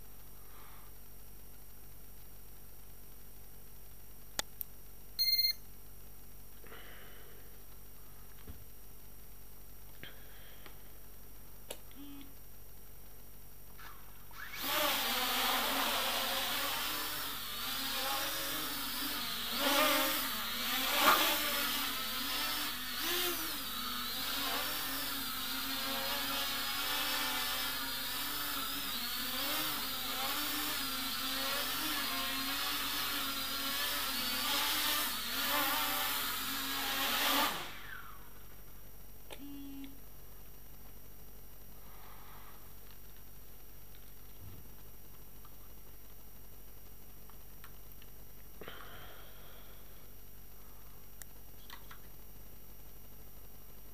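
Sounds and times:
quadcopter propellers buzzing: 14.5s - 38.1s.

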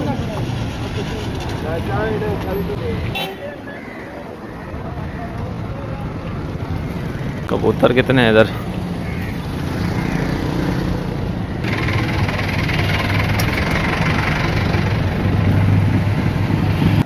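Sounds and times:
street traffic: 0.0s - 17.0s
vehicle engine idling: 11.6s - 15.7s.

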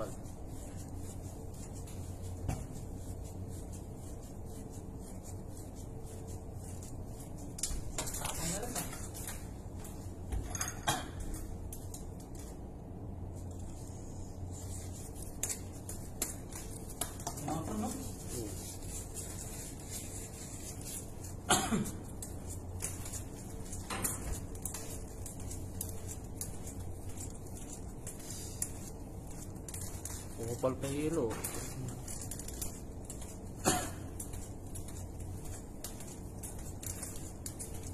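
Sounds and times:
steady low hum: 0.0s - 37.9s.

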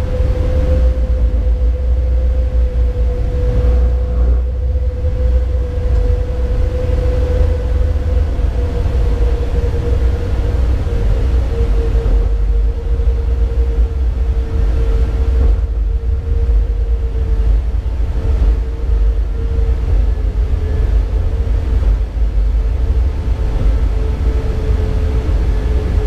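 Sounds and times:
electric locomotive rumbling: 0.0s - 26.0s
steady tone: 1.4s - 5.7s.

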